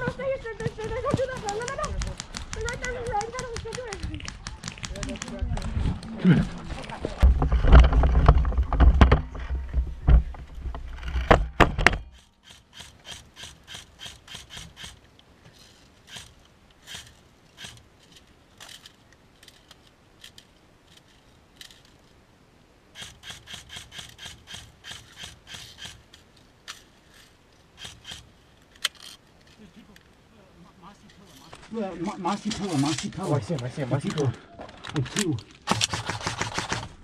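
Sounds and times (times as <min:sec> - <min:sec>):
rifle knocking and rubbing on gravel: 0:00.0 - 0:09.3, 0:31.0 - 0:37.0.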